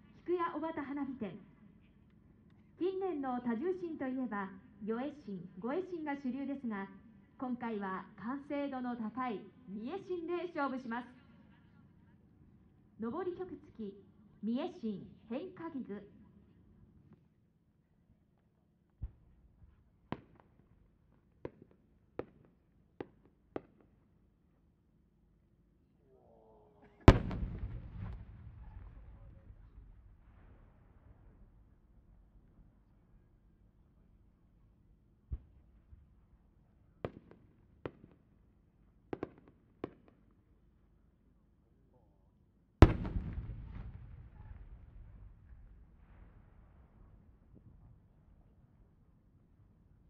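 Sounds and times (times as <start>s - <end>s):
short sharp firework pops: 19.0s - 19.3s, 27.1s - 29.1s, 42.8s - 45.1s
distant firework pops: 20.1s - 20.7s, 21.4s - 24.0s, 27.1s - 29.2s, 37.0s - 38.2s, 39.2s - 40.2s, 42.8s - 46.6s.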